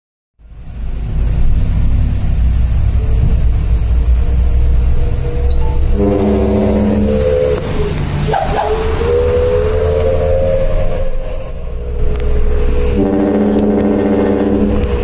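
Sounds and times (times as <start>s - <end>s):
truck engine rumbling: 0.4s - 15.0s
truck air horn blasts: 4.4s - 15.0s.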